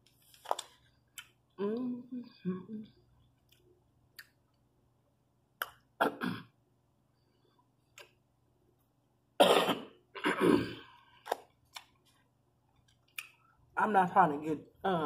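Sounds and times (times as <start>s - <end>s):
woman coughing: 6.0s - 6.5s, 9.4s - 10.9s.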